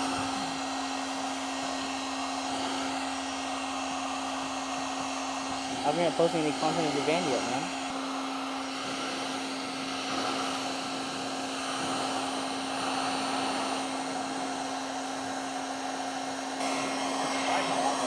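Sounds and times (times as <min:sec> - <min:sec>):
heat gun running: 0:00.0 - 0:18.0.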